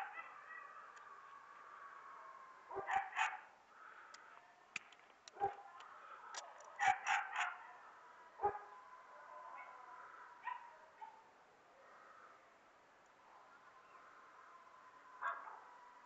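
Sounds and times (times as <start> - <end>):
dogs barking: 0.0 - 0.8, 2.7 - 3.5, 5.3 - 5.7, 6.8 - 7.8, 8.4 - 8.8, 10.4 - 11.3, 15.2 - 15.7.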